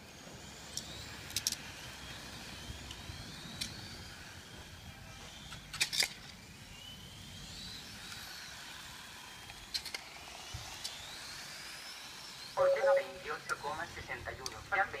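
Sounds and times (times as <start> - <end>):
rc car motors whining: 0.0 - 15.0
sharp clicks: 14.4 - 14.6.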